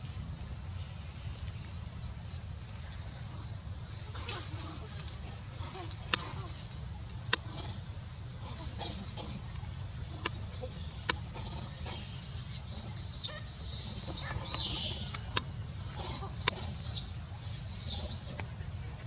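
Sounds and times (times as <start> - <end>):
monkeys squealing and chirping: 11.3 - 18.4.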